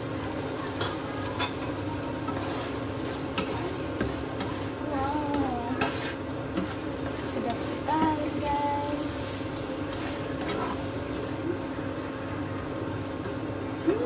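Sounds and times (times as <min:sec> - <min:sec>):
food sizzling: 0:00.0 - 0:14.0
spatula scraping a wok: 0:01.5 - 0:10.9.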